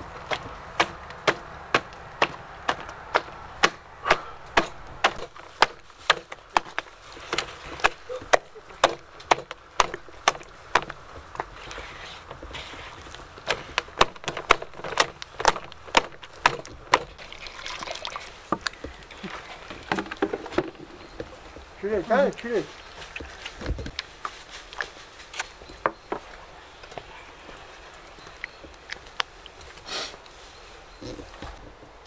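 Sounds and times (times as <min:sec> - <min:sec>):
liquid pouring into a basin: 0:17.2 - 0:18.4.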